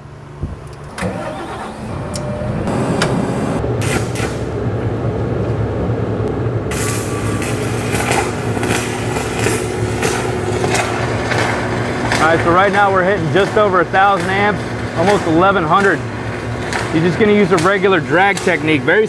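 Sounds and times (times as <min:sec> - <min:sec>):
generator engine rumble: 0:00.0 - 0:19.0
welding arc crackling: 0:06.7 - 0:19.0.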